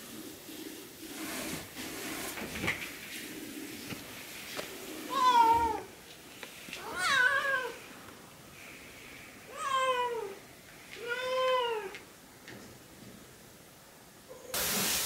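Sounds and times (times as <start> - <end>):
cat meowing: 5.1 - 5.9, 6.8 - 7.8, 9.5 - 10.4, 11.0 - 12.0.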